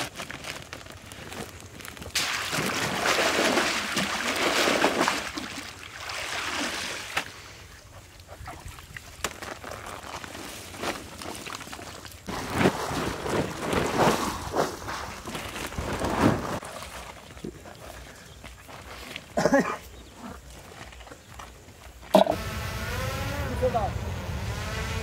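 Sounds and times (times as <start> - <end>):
water sloshing and splashing: 1.9 - 18.0.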